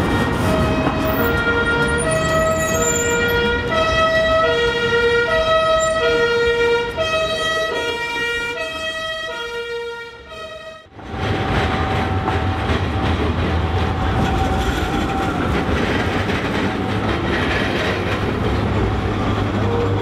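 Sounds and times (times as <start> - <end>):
two-tone siren: 0.0 - 10.9
street and tram noise: 0.0 - 20.0.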